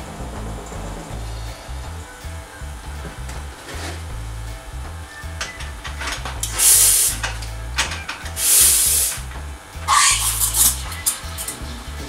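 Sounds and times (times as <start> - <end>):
espresso steam wand hissing: 6.4 - 7.2, 8.4 - 9.2, 9.9 - 11.0
brief squeal: 9.9 - 11.3.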